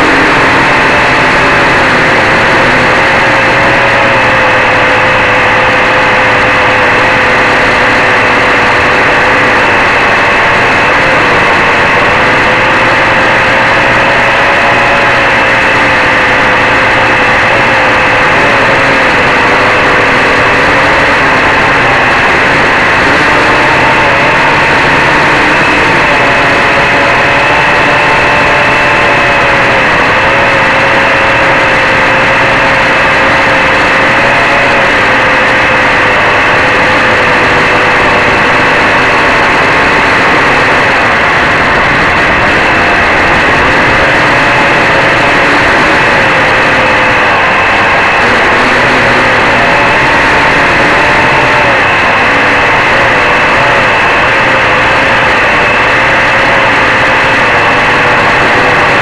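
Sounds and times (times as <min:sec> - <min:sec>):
quadcopter motors droning: 0:00.0 - 0:59.0.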